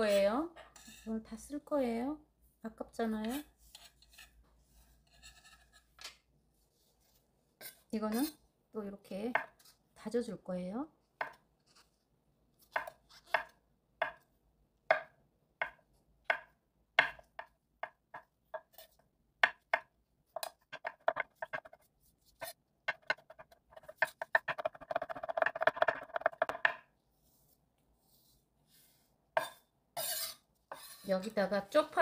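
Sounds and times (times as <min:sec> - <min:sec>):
kitchen knife chopping: 0:14.9 - 0:18.8.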